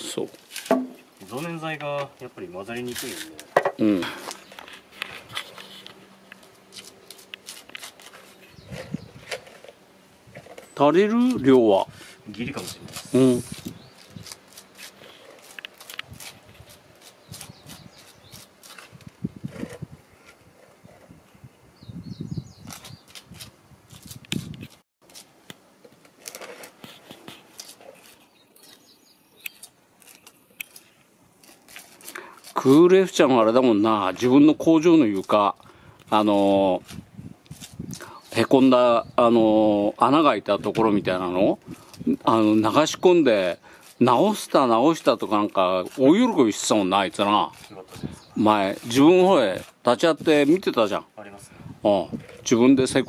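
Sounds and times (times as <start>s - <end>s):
scraper scratching concrete: 6.6s - 9.8s, 10.4s - 21.0s, 31.4s - 33.7s, 41.8s - 50.9s
birds chirping faintly: 8.1s - 9.9s, 12.3s - 15.2s, 17.0s - 18.9s, 27.9s - 31.1s
spatula scraping concrete: 31.4s - 33.4s, 43.4s - 50.8s.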